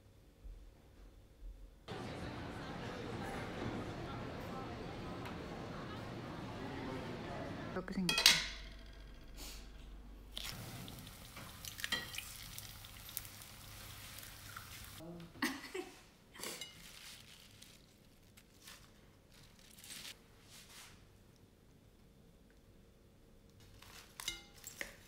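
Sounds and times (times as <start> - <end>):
salad leaves rustling: 10.3 - 15.0, 16.5 - 21.0
light clinks of utensils: 24.2 - 25.0.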